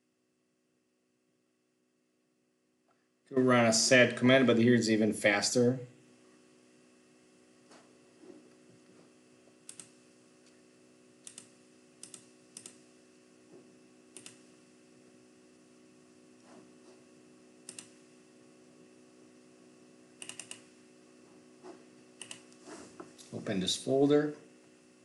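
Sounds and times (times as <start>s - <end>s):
low steady hum: 0.0s - 25.0s
mouse and keyboard clicks: 20.2s - 20.6s, 22.2s - 22.5s.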